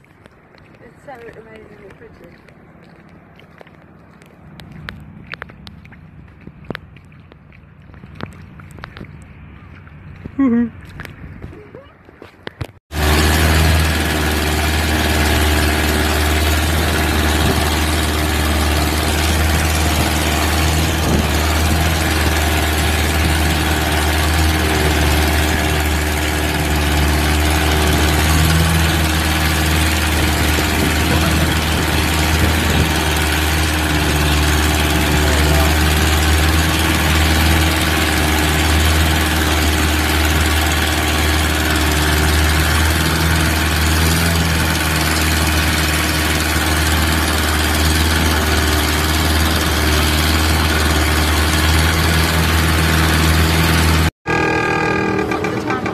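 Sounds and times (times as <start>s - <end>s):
boat engine droning: 0.0s - 12.2s, 12.9s - 55.9s
rushing water and wind: 13.0s - 53.7s.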